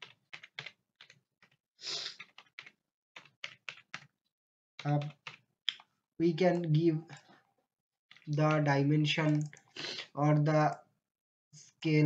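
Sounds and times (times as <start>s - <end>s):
typing on a keyboard: 0.0s - 4.2s, 4.8s - 7.2s, 8.1s - 9.7s.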